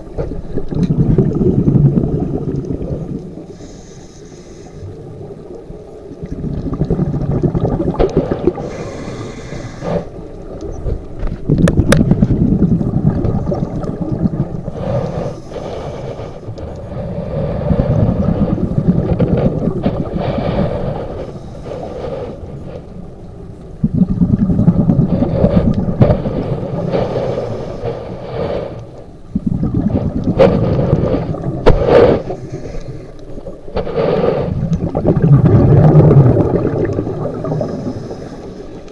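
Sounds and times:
underwater bubbles rumbling: 0.0s - 3.8s, 4.9s - 38.9s
regulator inhalations: 3.5s - 5.0s, 8.6s - 10.2s, 14.8s - 16.6s, 37.4s - 38.9s.

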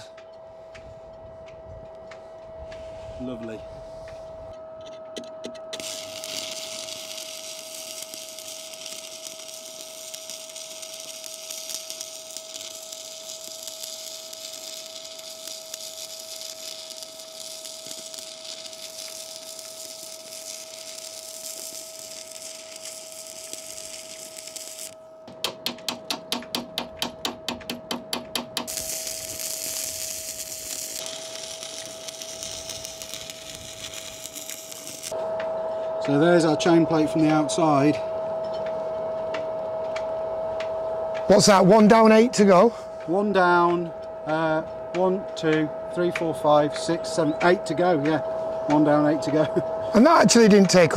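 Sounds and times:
faint steady whine: 0.0s - 50.9s
welding arc crackling: 5.7s - 35.2s, 43.6s - 50.9s.

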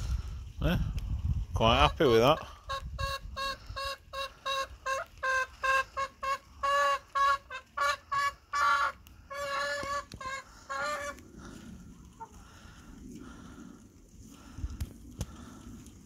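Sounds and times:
hens clucking: 1.7s - 12.6s.

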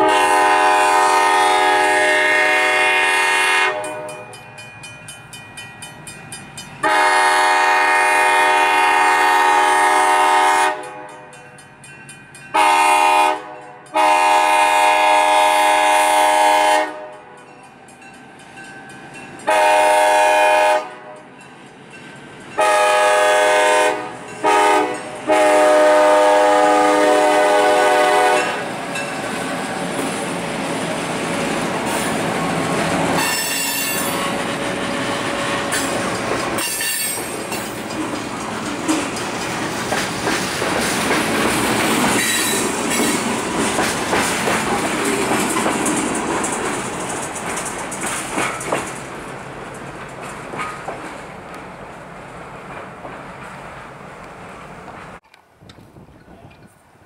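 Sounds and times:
locomotive air horn blasts: 0.0s - 4.2s, 6.8s - 11.3s, 12.5s - 17.4s, 19.5s - 21.3s, 22.6s - 28.7s, 33.2s - 35.9s
train wheels clicking over rail joints: 24.0s - 56.9s
high wheel squeals: 33.1s - 38.1s, 42.2s - 43.2s.

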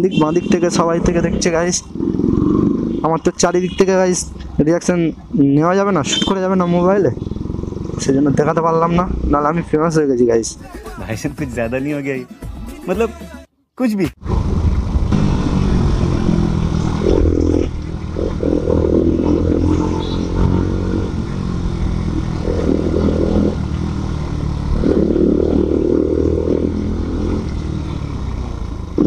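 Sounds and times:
motorcycle engine revving: 0.1s - 10.6s, 14.2s - 29.0s.

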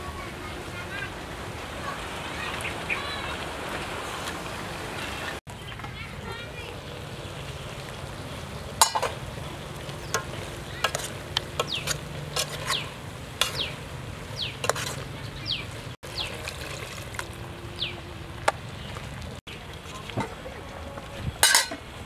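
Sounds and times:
low sizzle of simmering pot: 5.4s - 22.0s
metal spoon clinking against pot: 8.8s - 9.2s, 21.4s - 21.8s.

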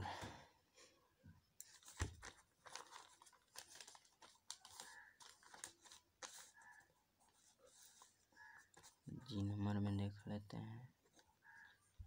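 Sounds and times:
paper rustling: 1.6s - 9.5s.

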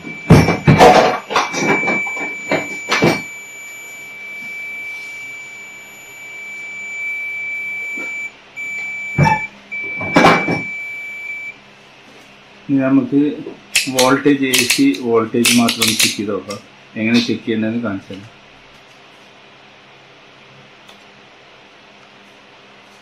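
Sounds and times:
continuity buzzer beeping: 0.0s - 11.6s
clicks and knocks of handling: 13.8s - 16.6s.

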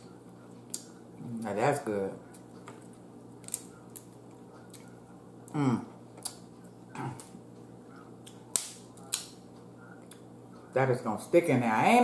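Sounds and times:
crab shell clicking: 2.7s - 4.1s, 8.2s - 9.4s
person murmuring mm: 5.5s - 5.9s, 6.9s - 7.3s.

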